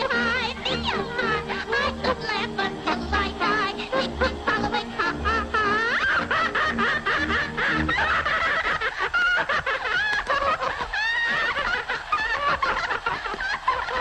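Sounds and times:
lively old-time music: 0.0s - 8.4s
high-pitched cartoon laughter: 0.0s - 14.0s.

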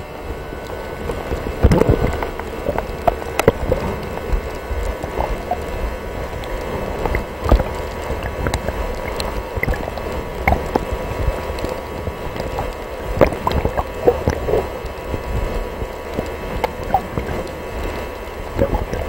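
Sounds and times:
underwater rumble of moving water: 0.0s - 19.0s
sharp clicks and pops: 1.2s - 5.7s, 6.4s - 14.8s.

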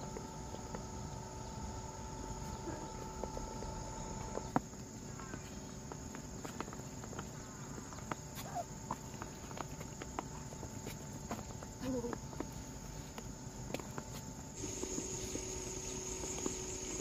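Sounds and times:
insects droning: 0.0s - 17.0s
ducks pecking at feed: 4.2s - 12.5s.

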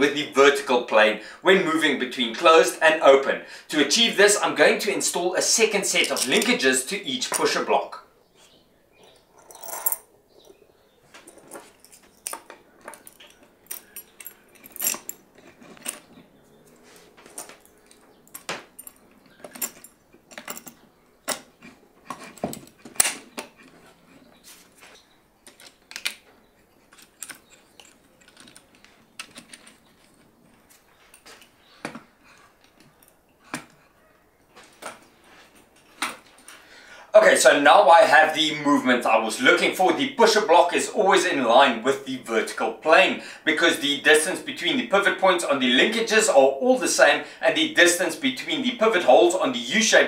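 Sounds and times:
metal bars clinking and knocking: 9.0s - 10.6s, 11.2s - 16.4s, 17.2s - 24.3s, 25.4s - 32.0s.

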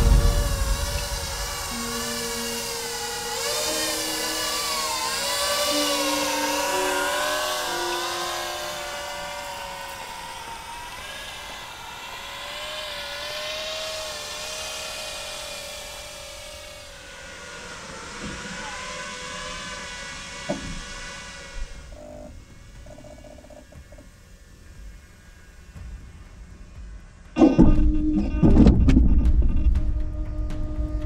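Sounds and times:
held music notes: 0.0s - 19.1s
drone propellers whining: 0.0s - 31.0s.

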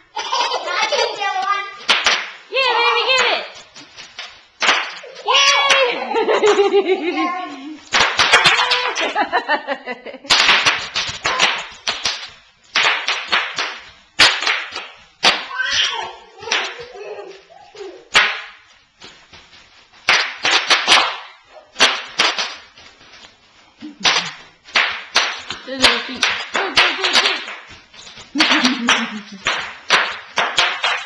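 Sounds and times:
bubble wrap popping: 7.8s - 9.2s, 10.3s - 31.0s.

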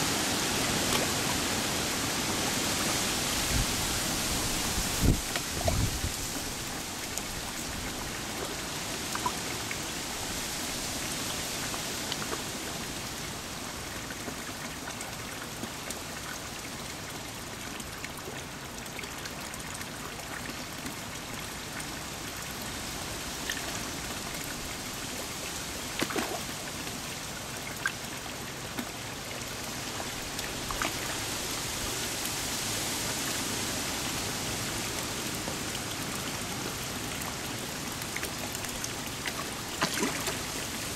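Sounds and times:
water running into pond: 0.0s - 40.9s
sharp splashes: 38.2s - 40.9s.

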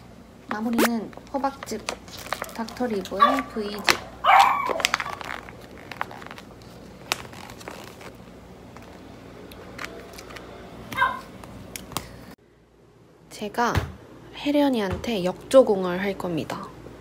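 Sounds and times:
juice pouch crinkling and clicking: 1.6s - 8.1s.

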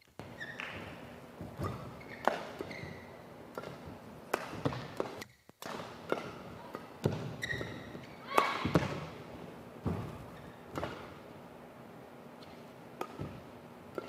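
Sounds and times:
shoes squeaking on floor: 0.0s - 5.4s, 7.0s - 8.8s, 9.8s - 11.0s
footfalls in a large hall: 0.0s - 14.0s
racket hitting shuttlecock: 0.2s - 11.3s, 12.4s - 14.0s.

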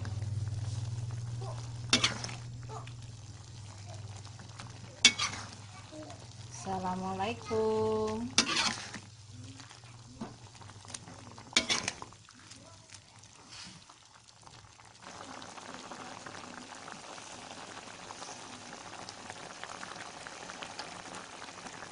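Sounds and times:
sauce bubbling and crackling: 0.0s - 21.9s
utensil clattering against wok: 5.0s - 5.6s, 8.3s - 9.0s, 11.5s - 12.0s.

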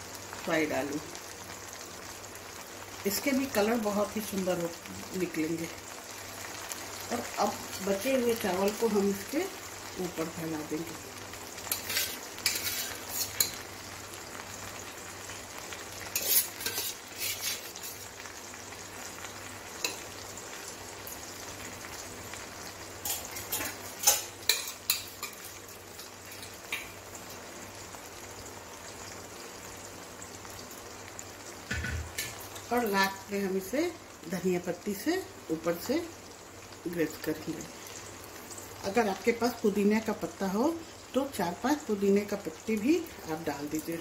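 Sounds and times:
ladle scraping a steel pot: 11.7s - 13.6s, 16.1s - 18.1s.

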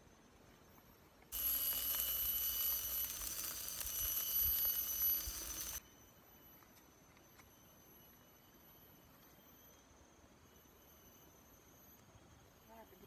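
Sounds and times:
cicadas ringing: 1.3s - 13.0s
skewers sizzling on a grill: 1.4s - 5.8s.

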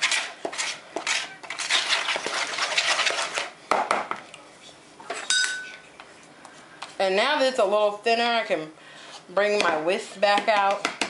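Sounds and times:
wooden spoon scraping bowl: 0.0s - 3.5s
short ringing clink: 5.3s - 5.8s.

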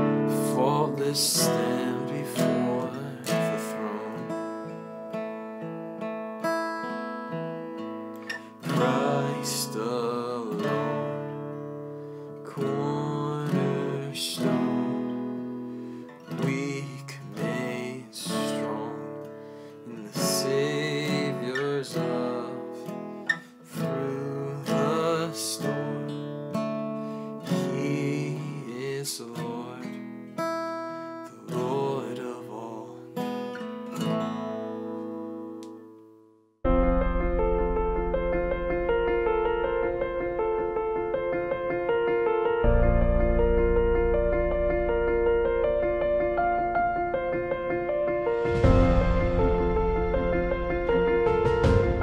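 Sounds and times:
man singing: 0.0s - 4.7s, 8.6s - 11.6s, 12.4s - 15.6s, 16.3s - 23.0s, 23.7s - 26.4s, 27.4s - 30.1s, 31.2s - 33.4s
acoustic guitar strumming: 0.0s - 36.0s, 36.7s - 52.0s.

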